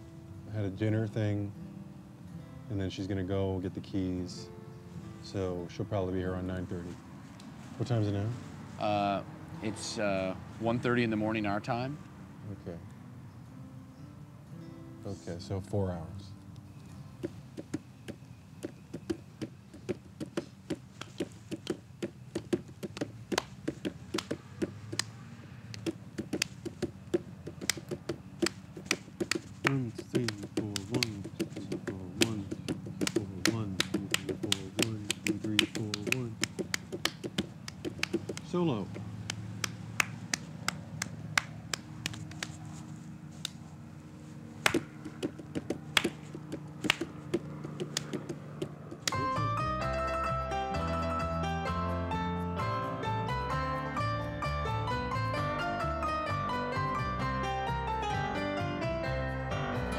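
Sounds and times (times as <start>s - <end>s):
people clapping hands: 22.8s - 25.1s, 25.7s - 26.9s, 27.5s - 38.6s, 39.2s - 42.6s, 44.6s - 51.0s
finger snaps: 25.7s - 26.9s, 27.6s - 38.5s, 39.2s - 42.6s, 43.4s - 43.6s, 44.6s - 49.3s.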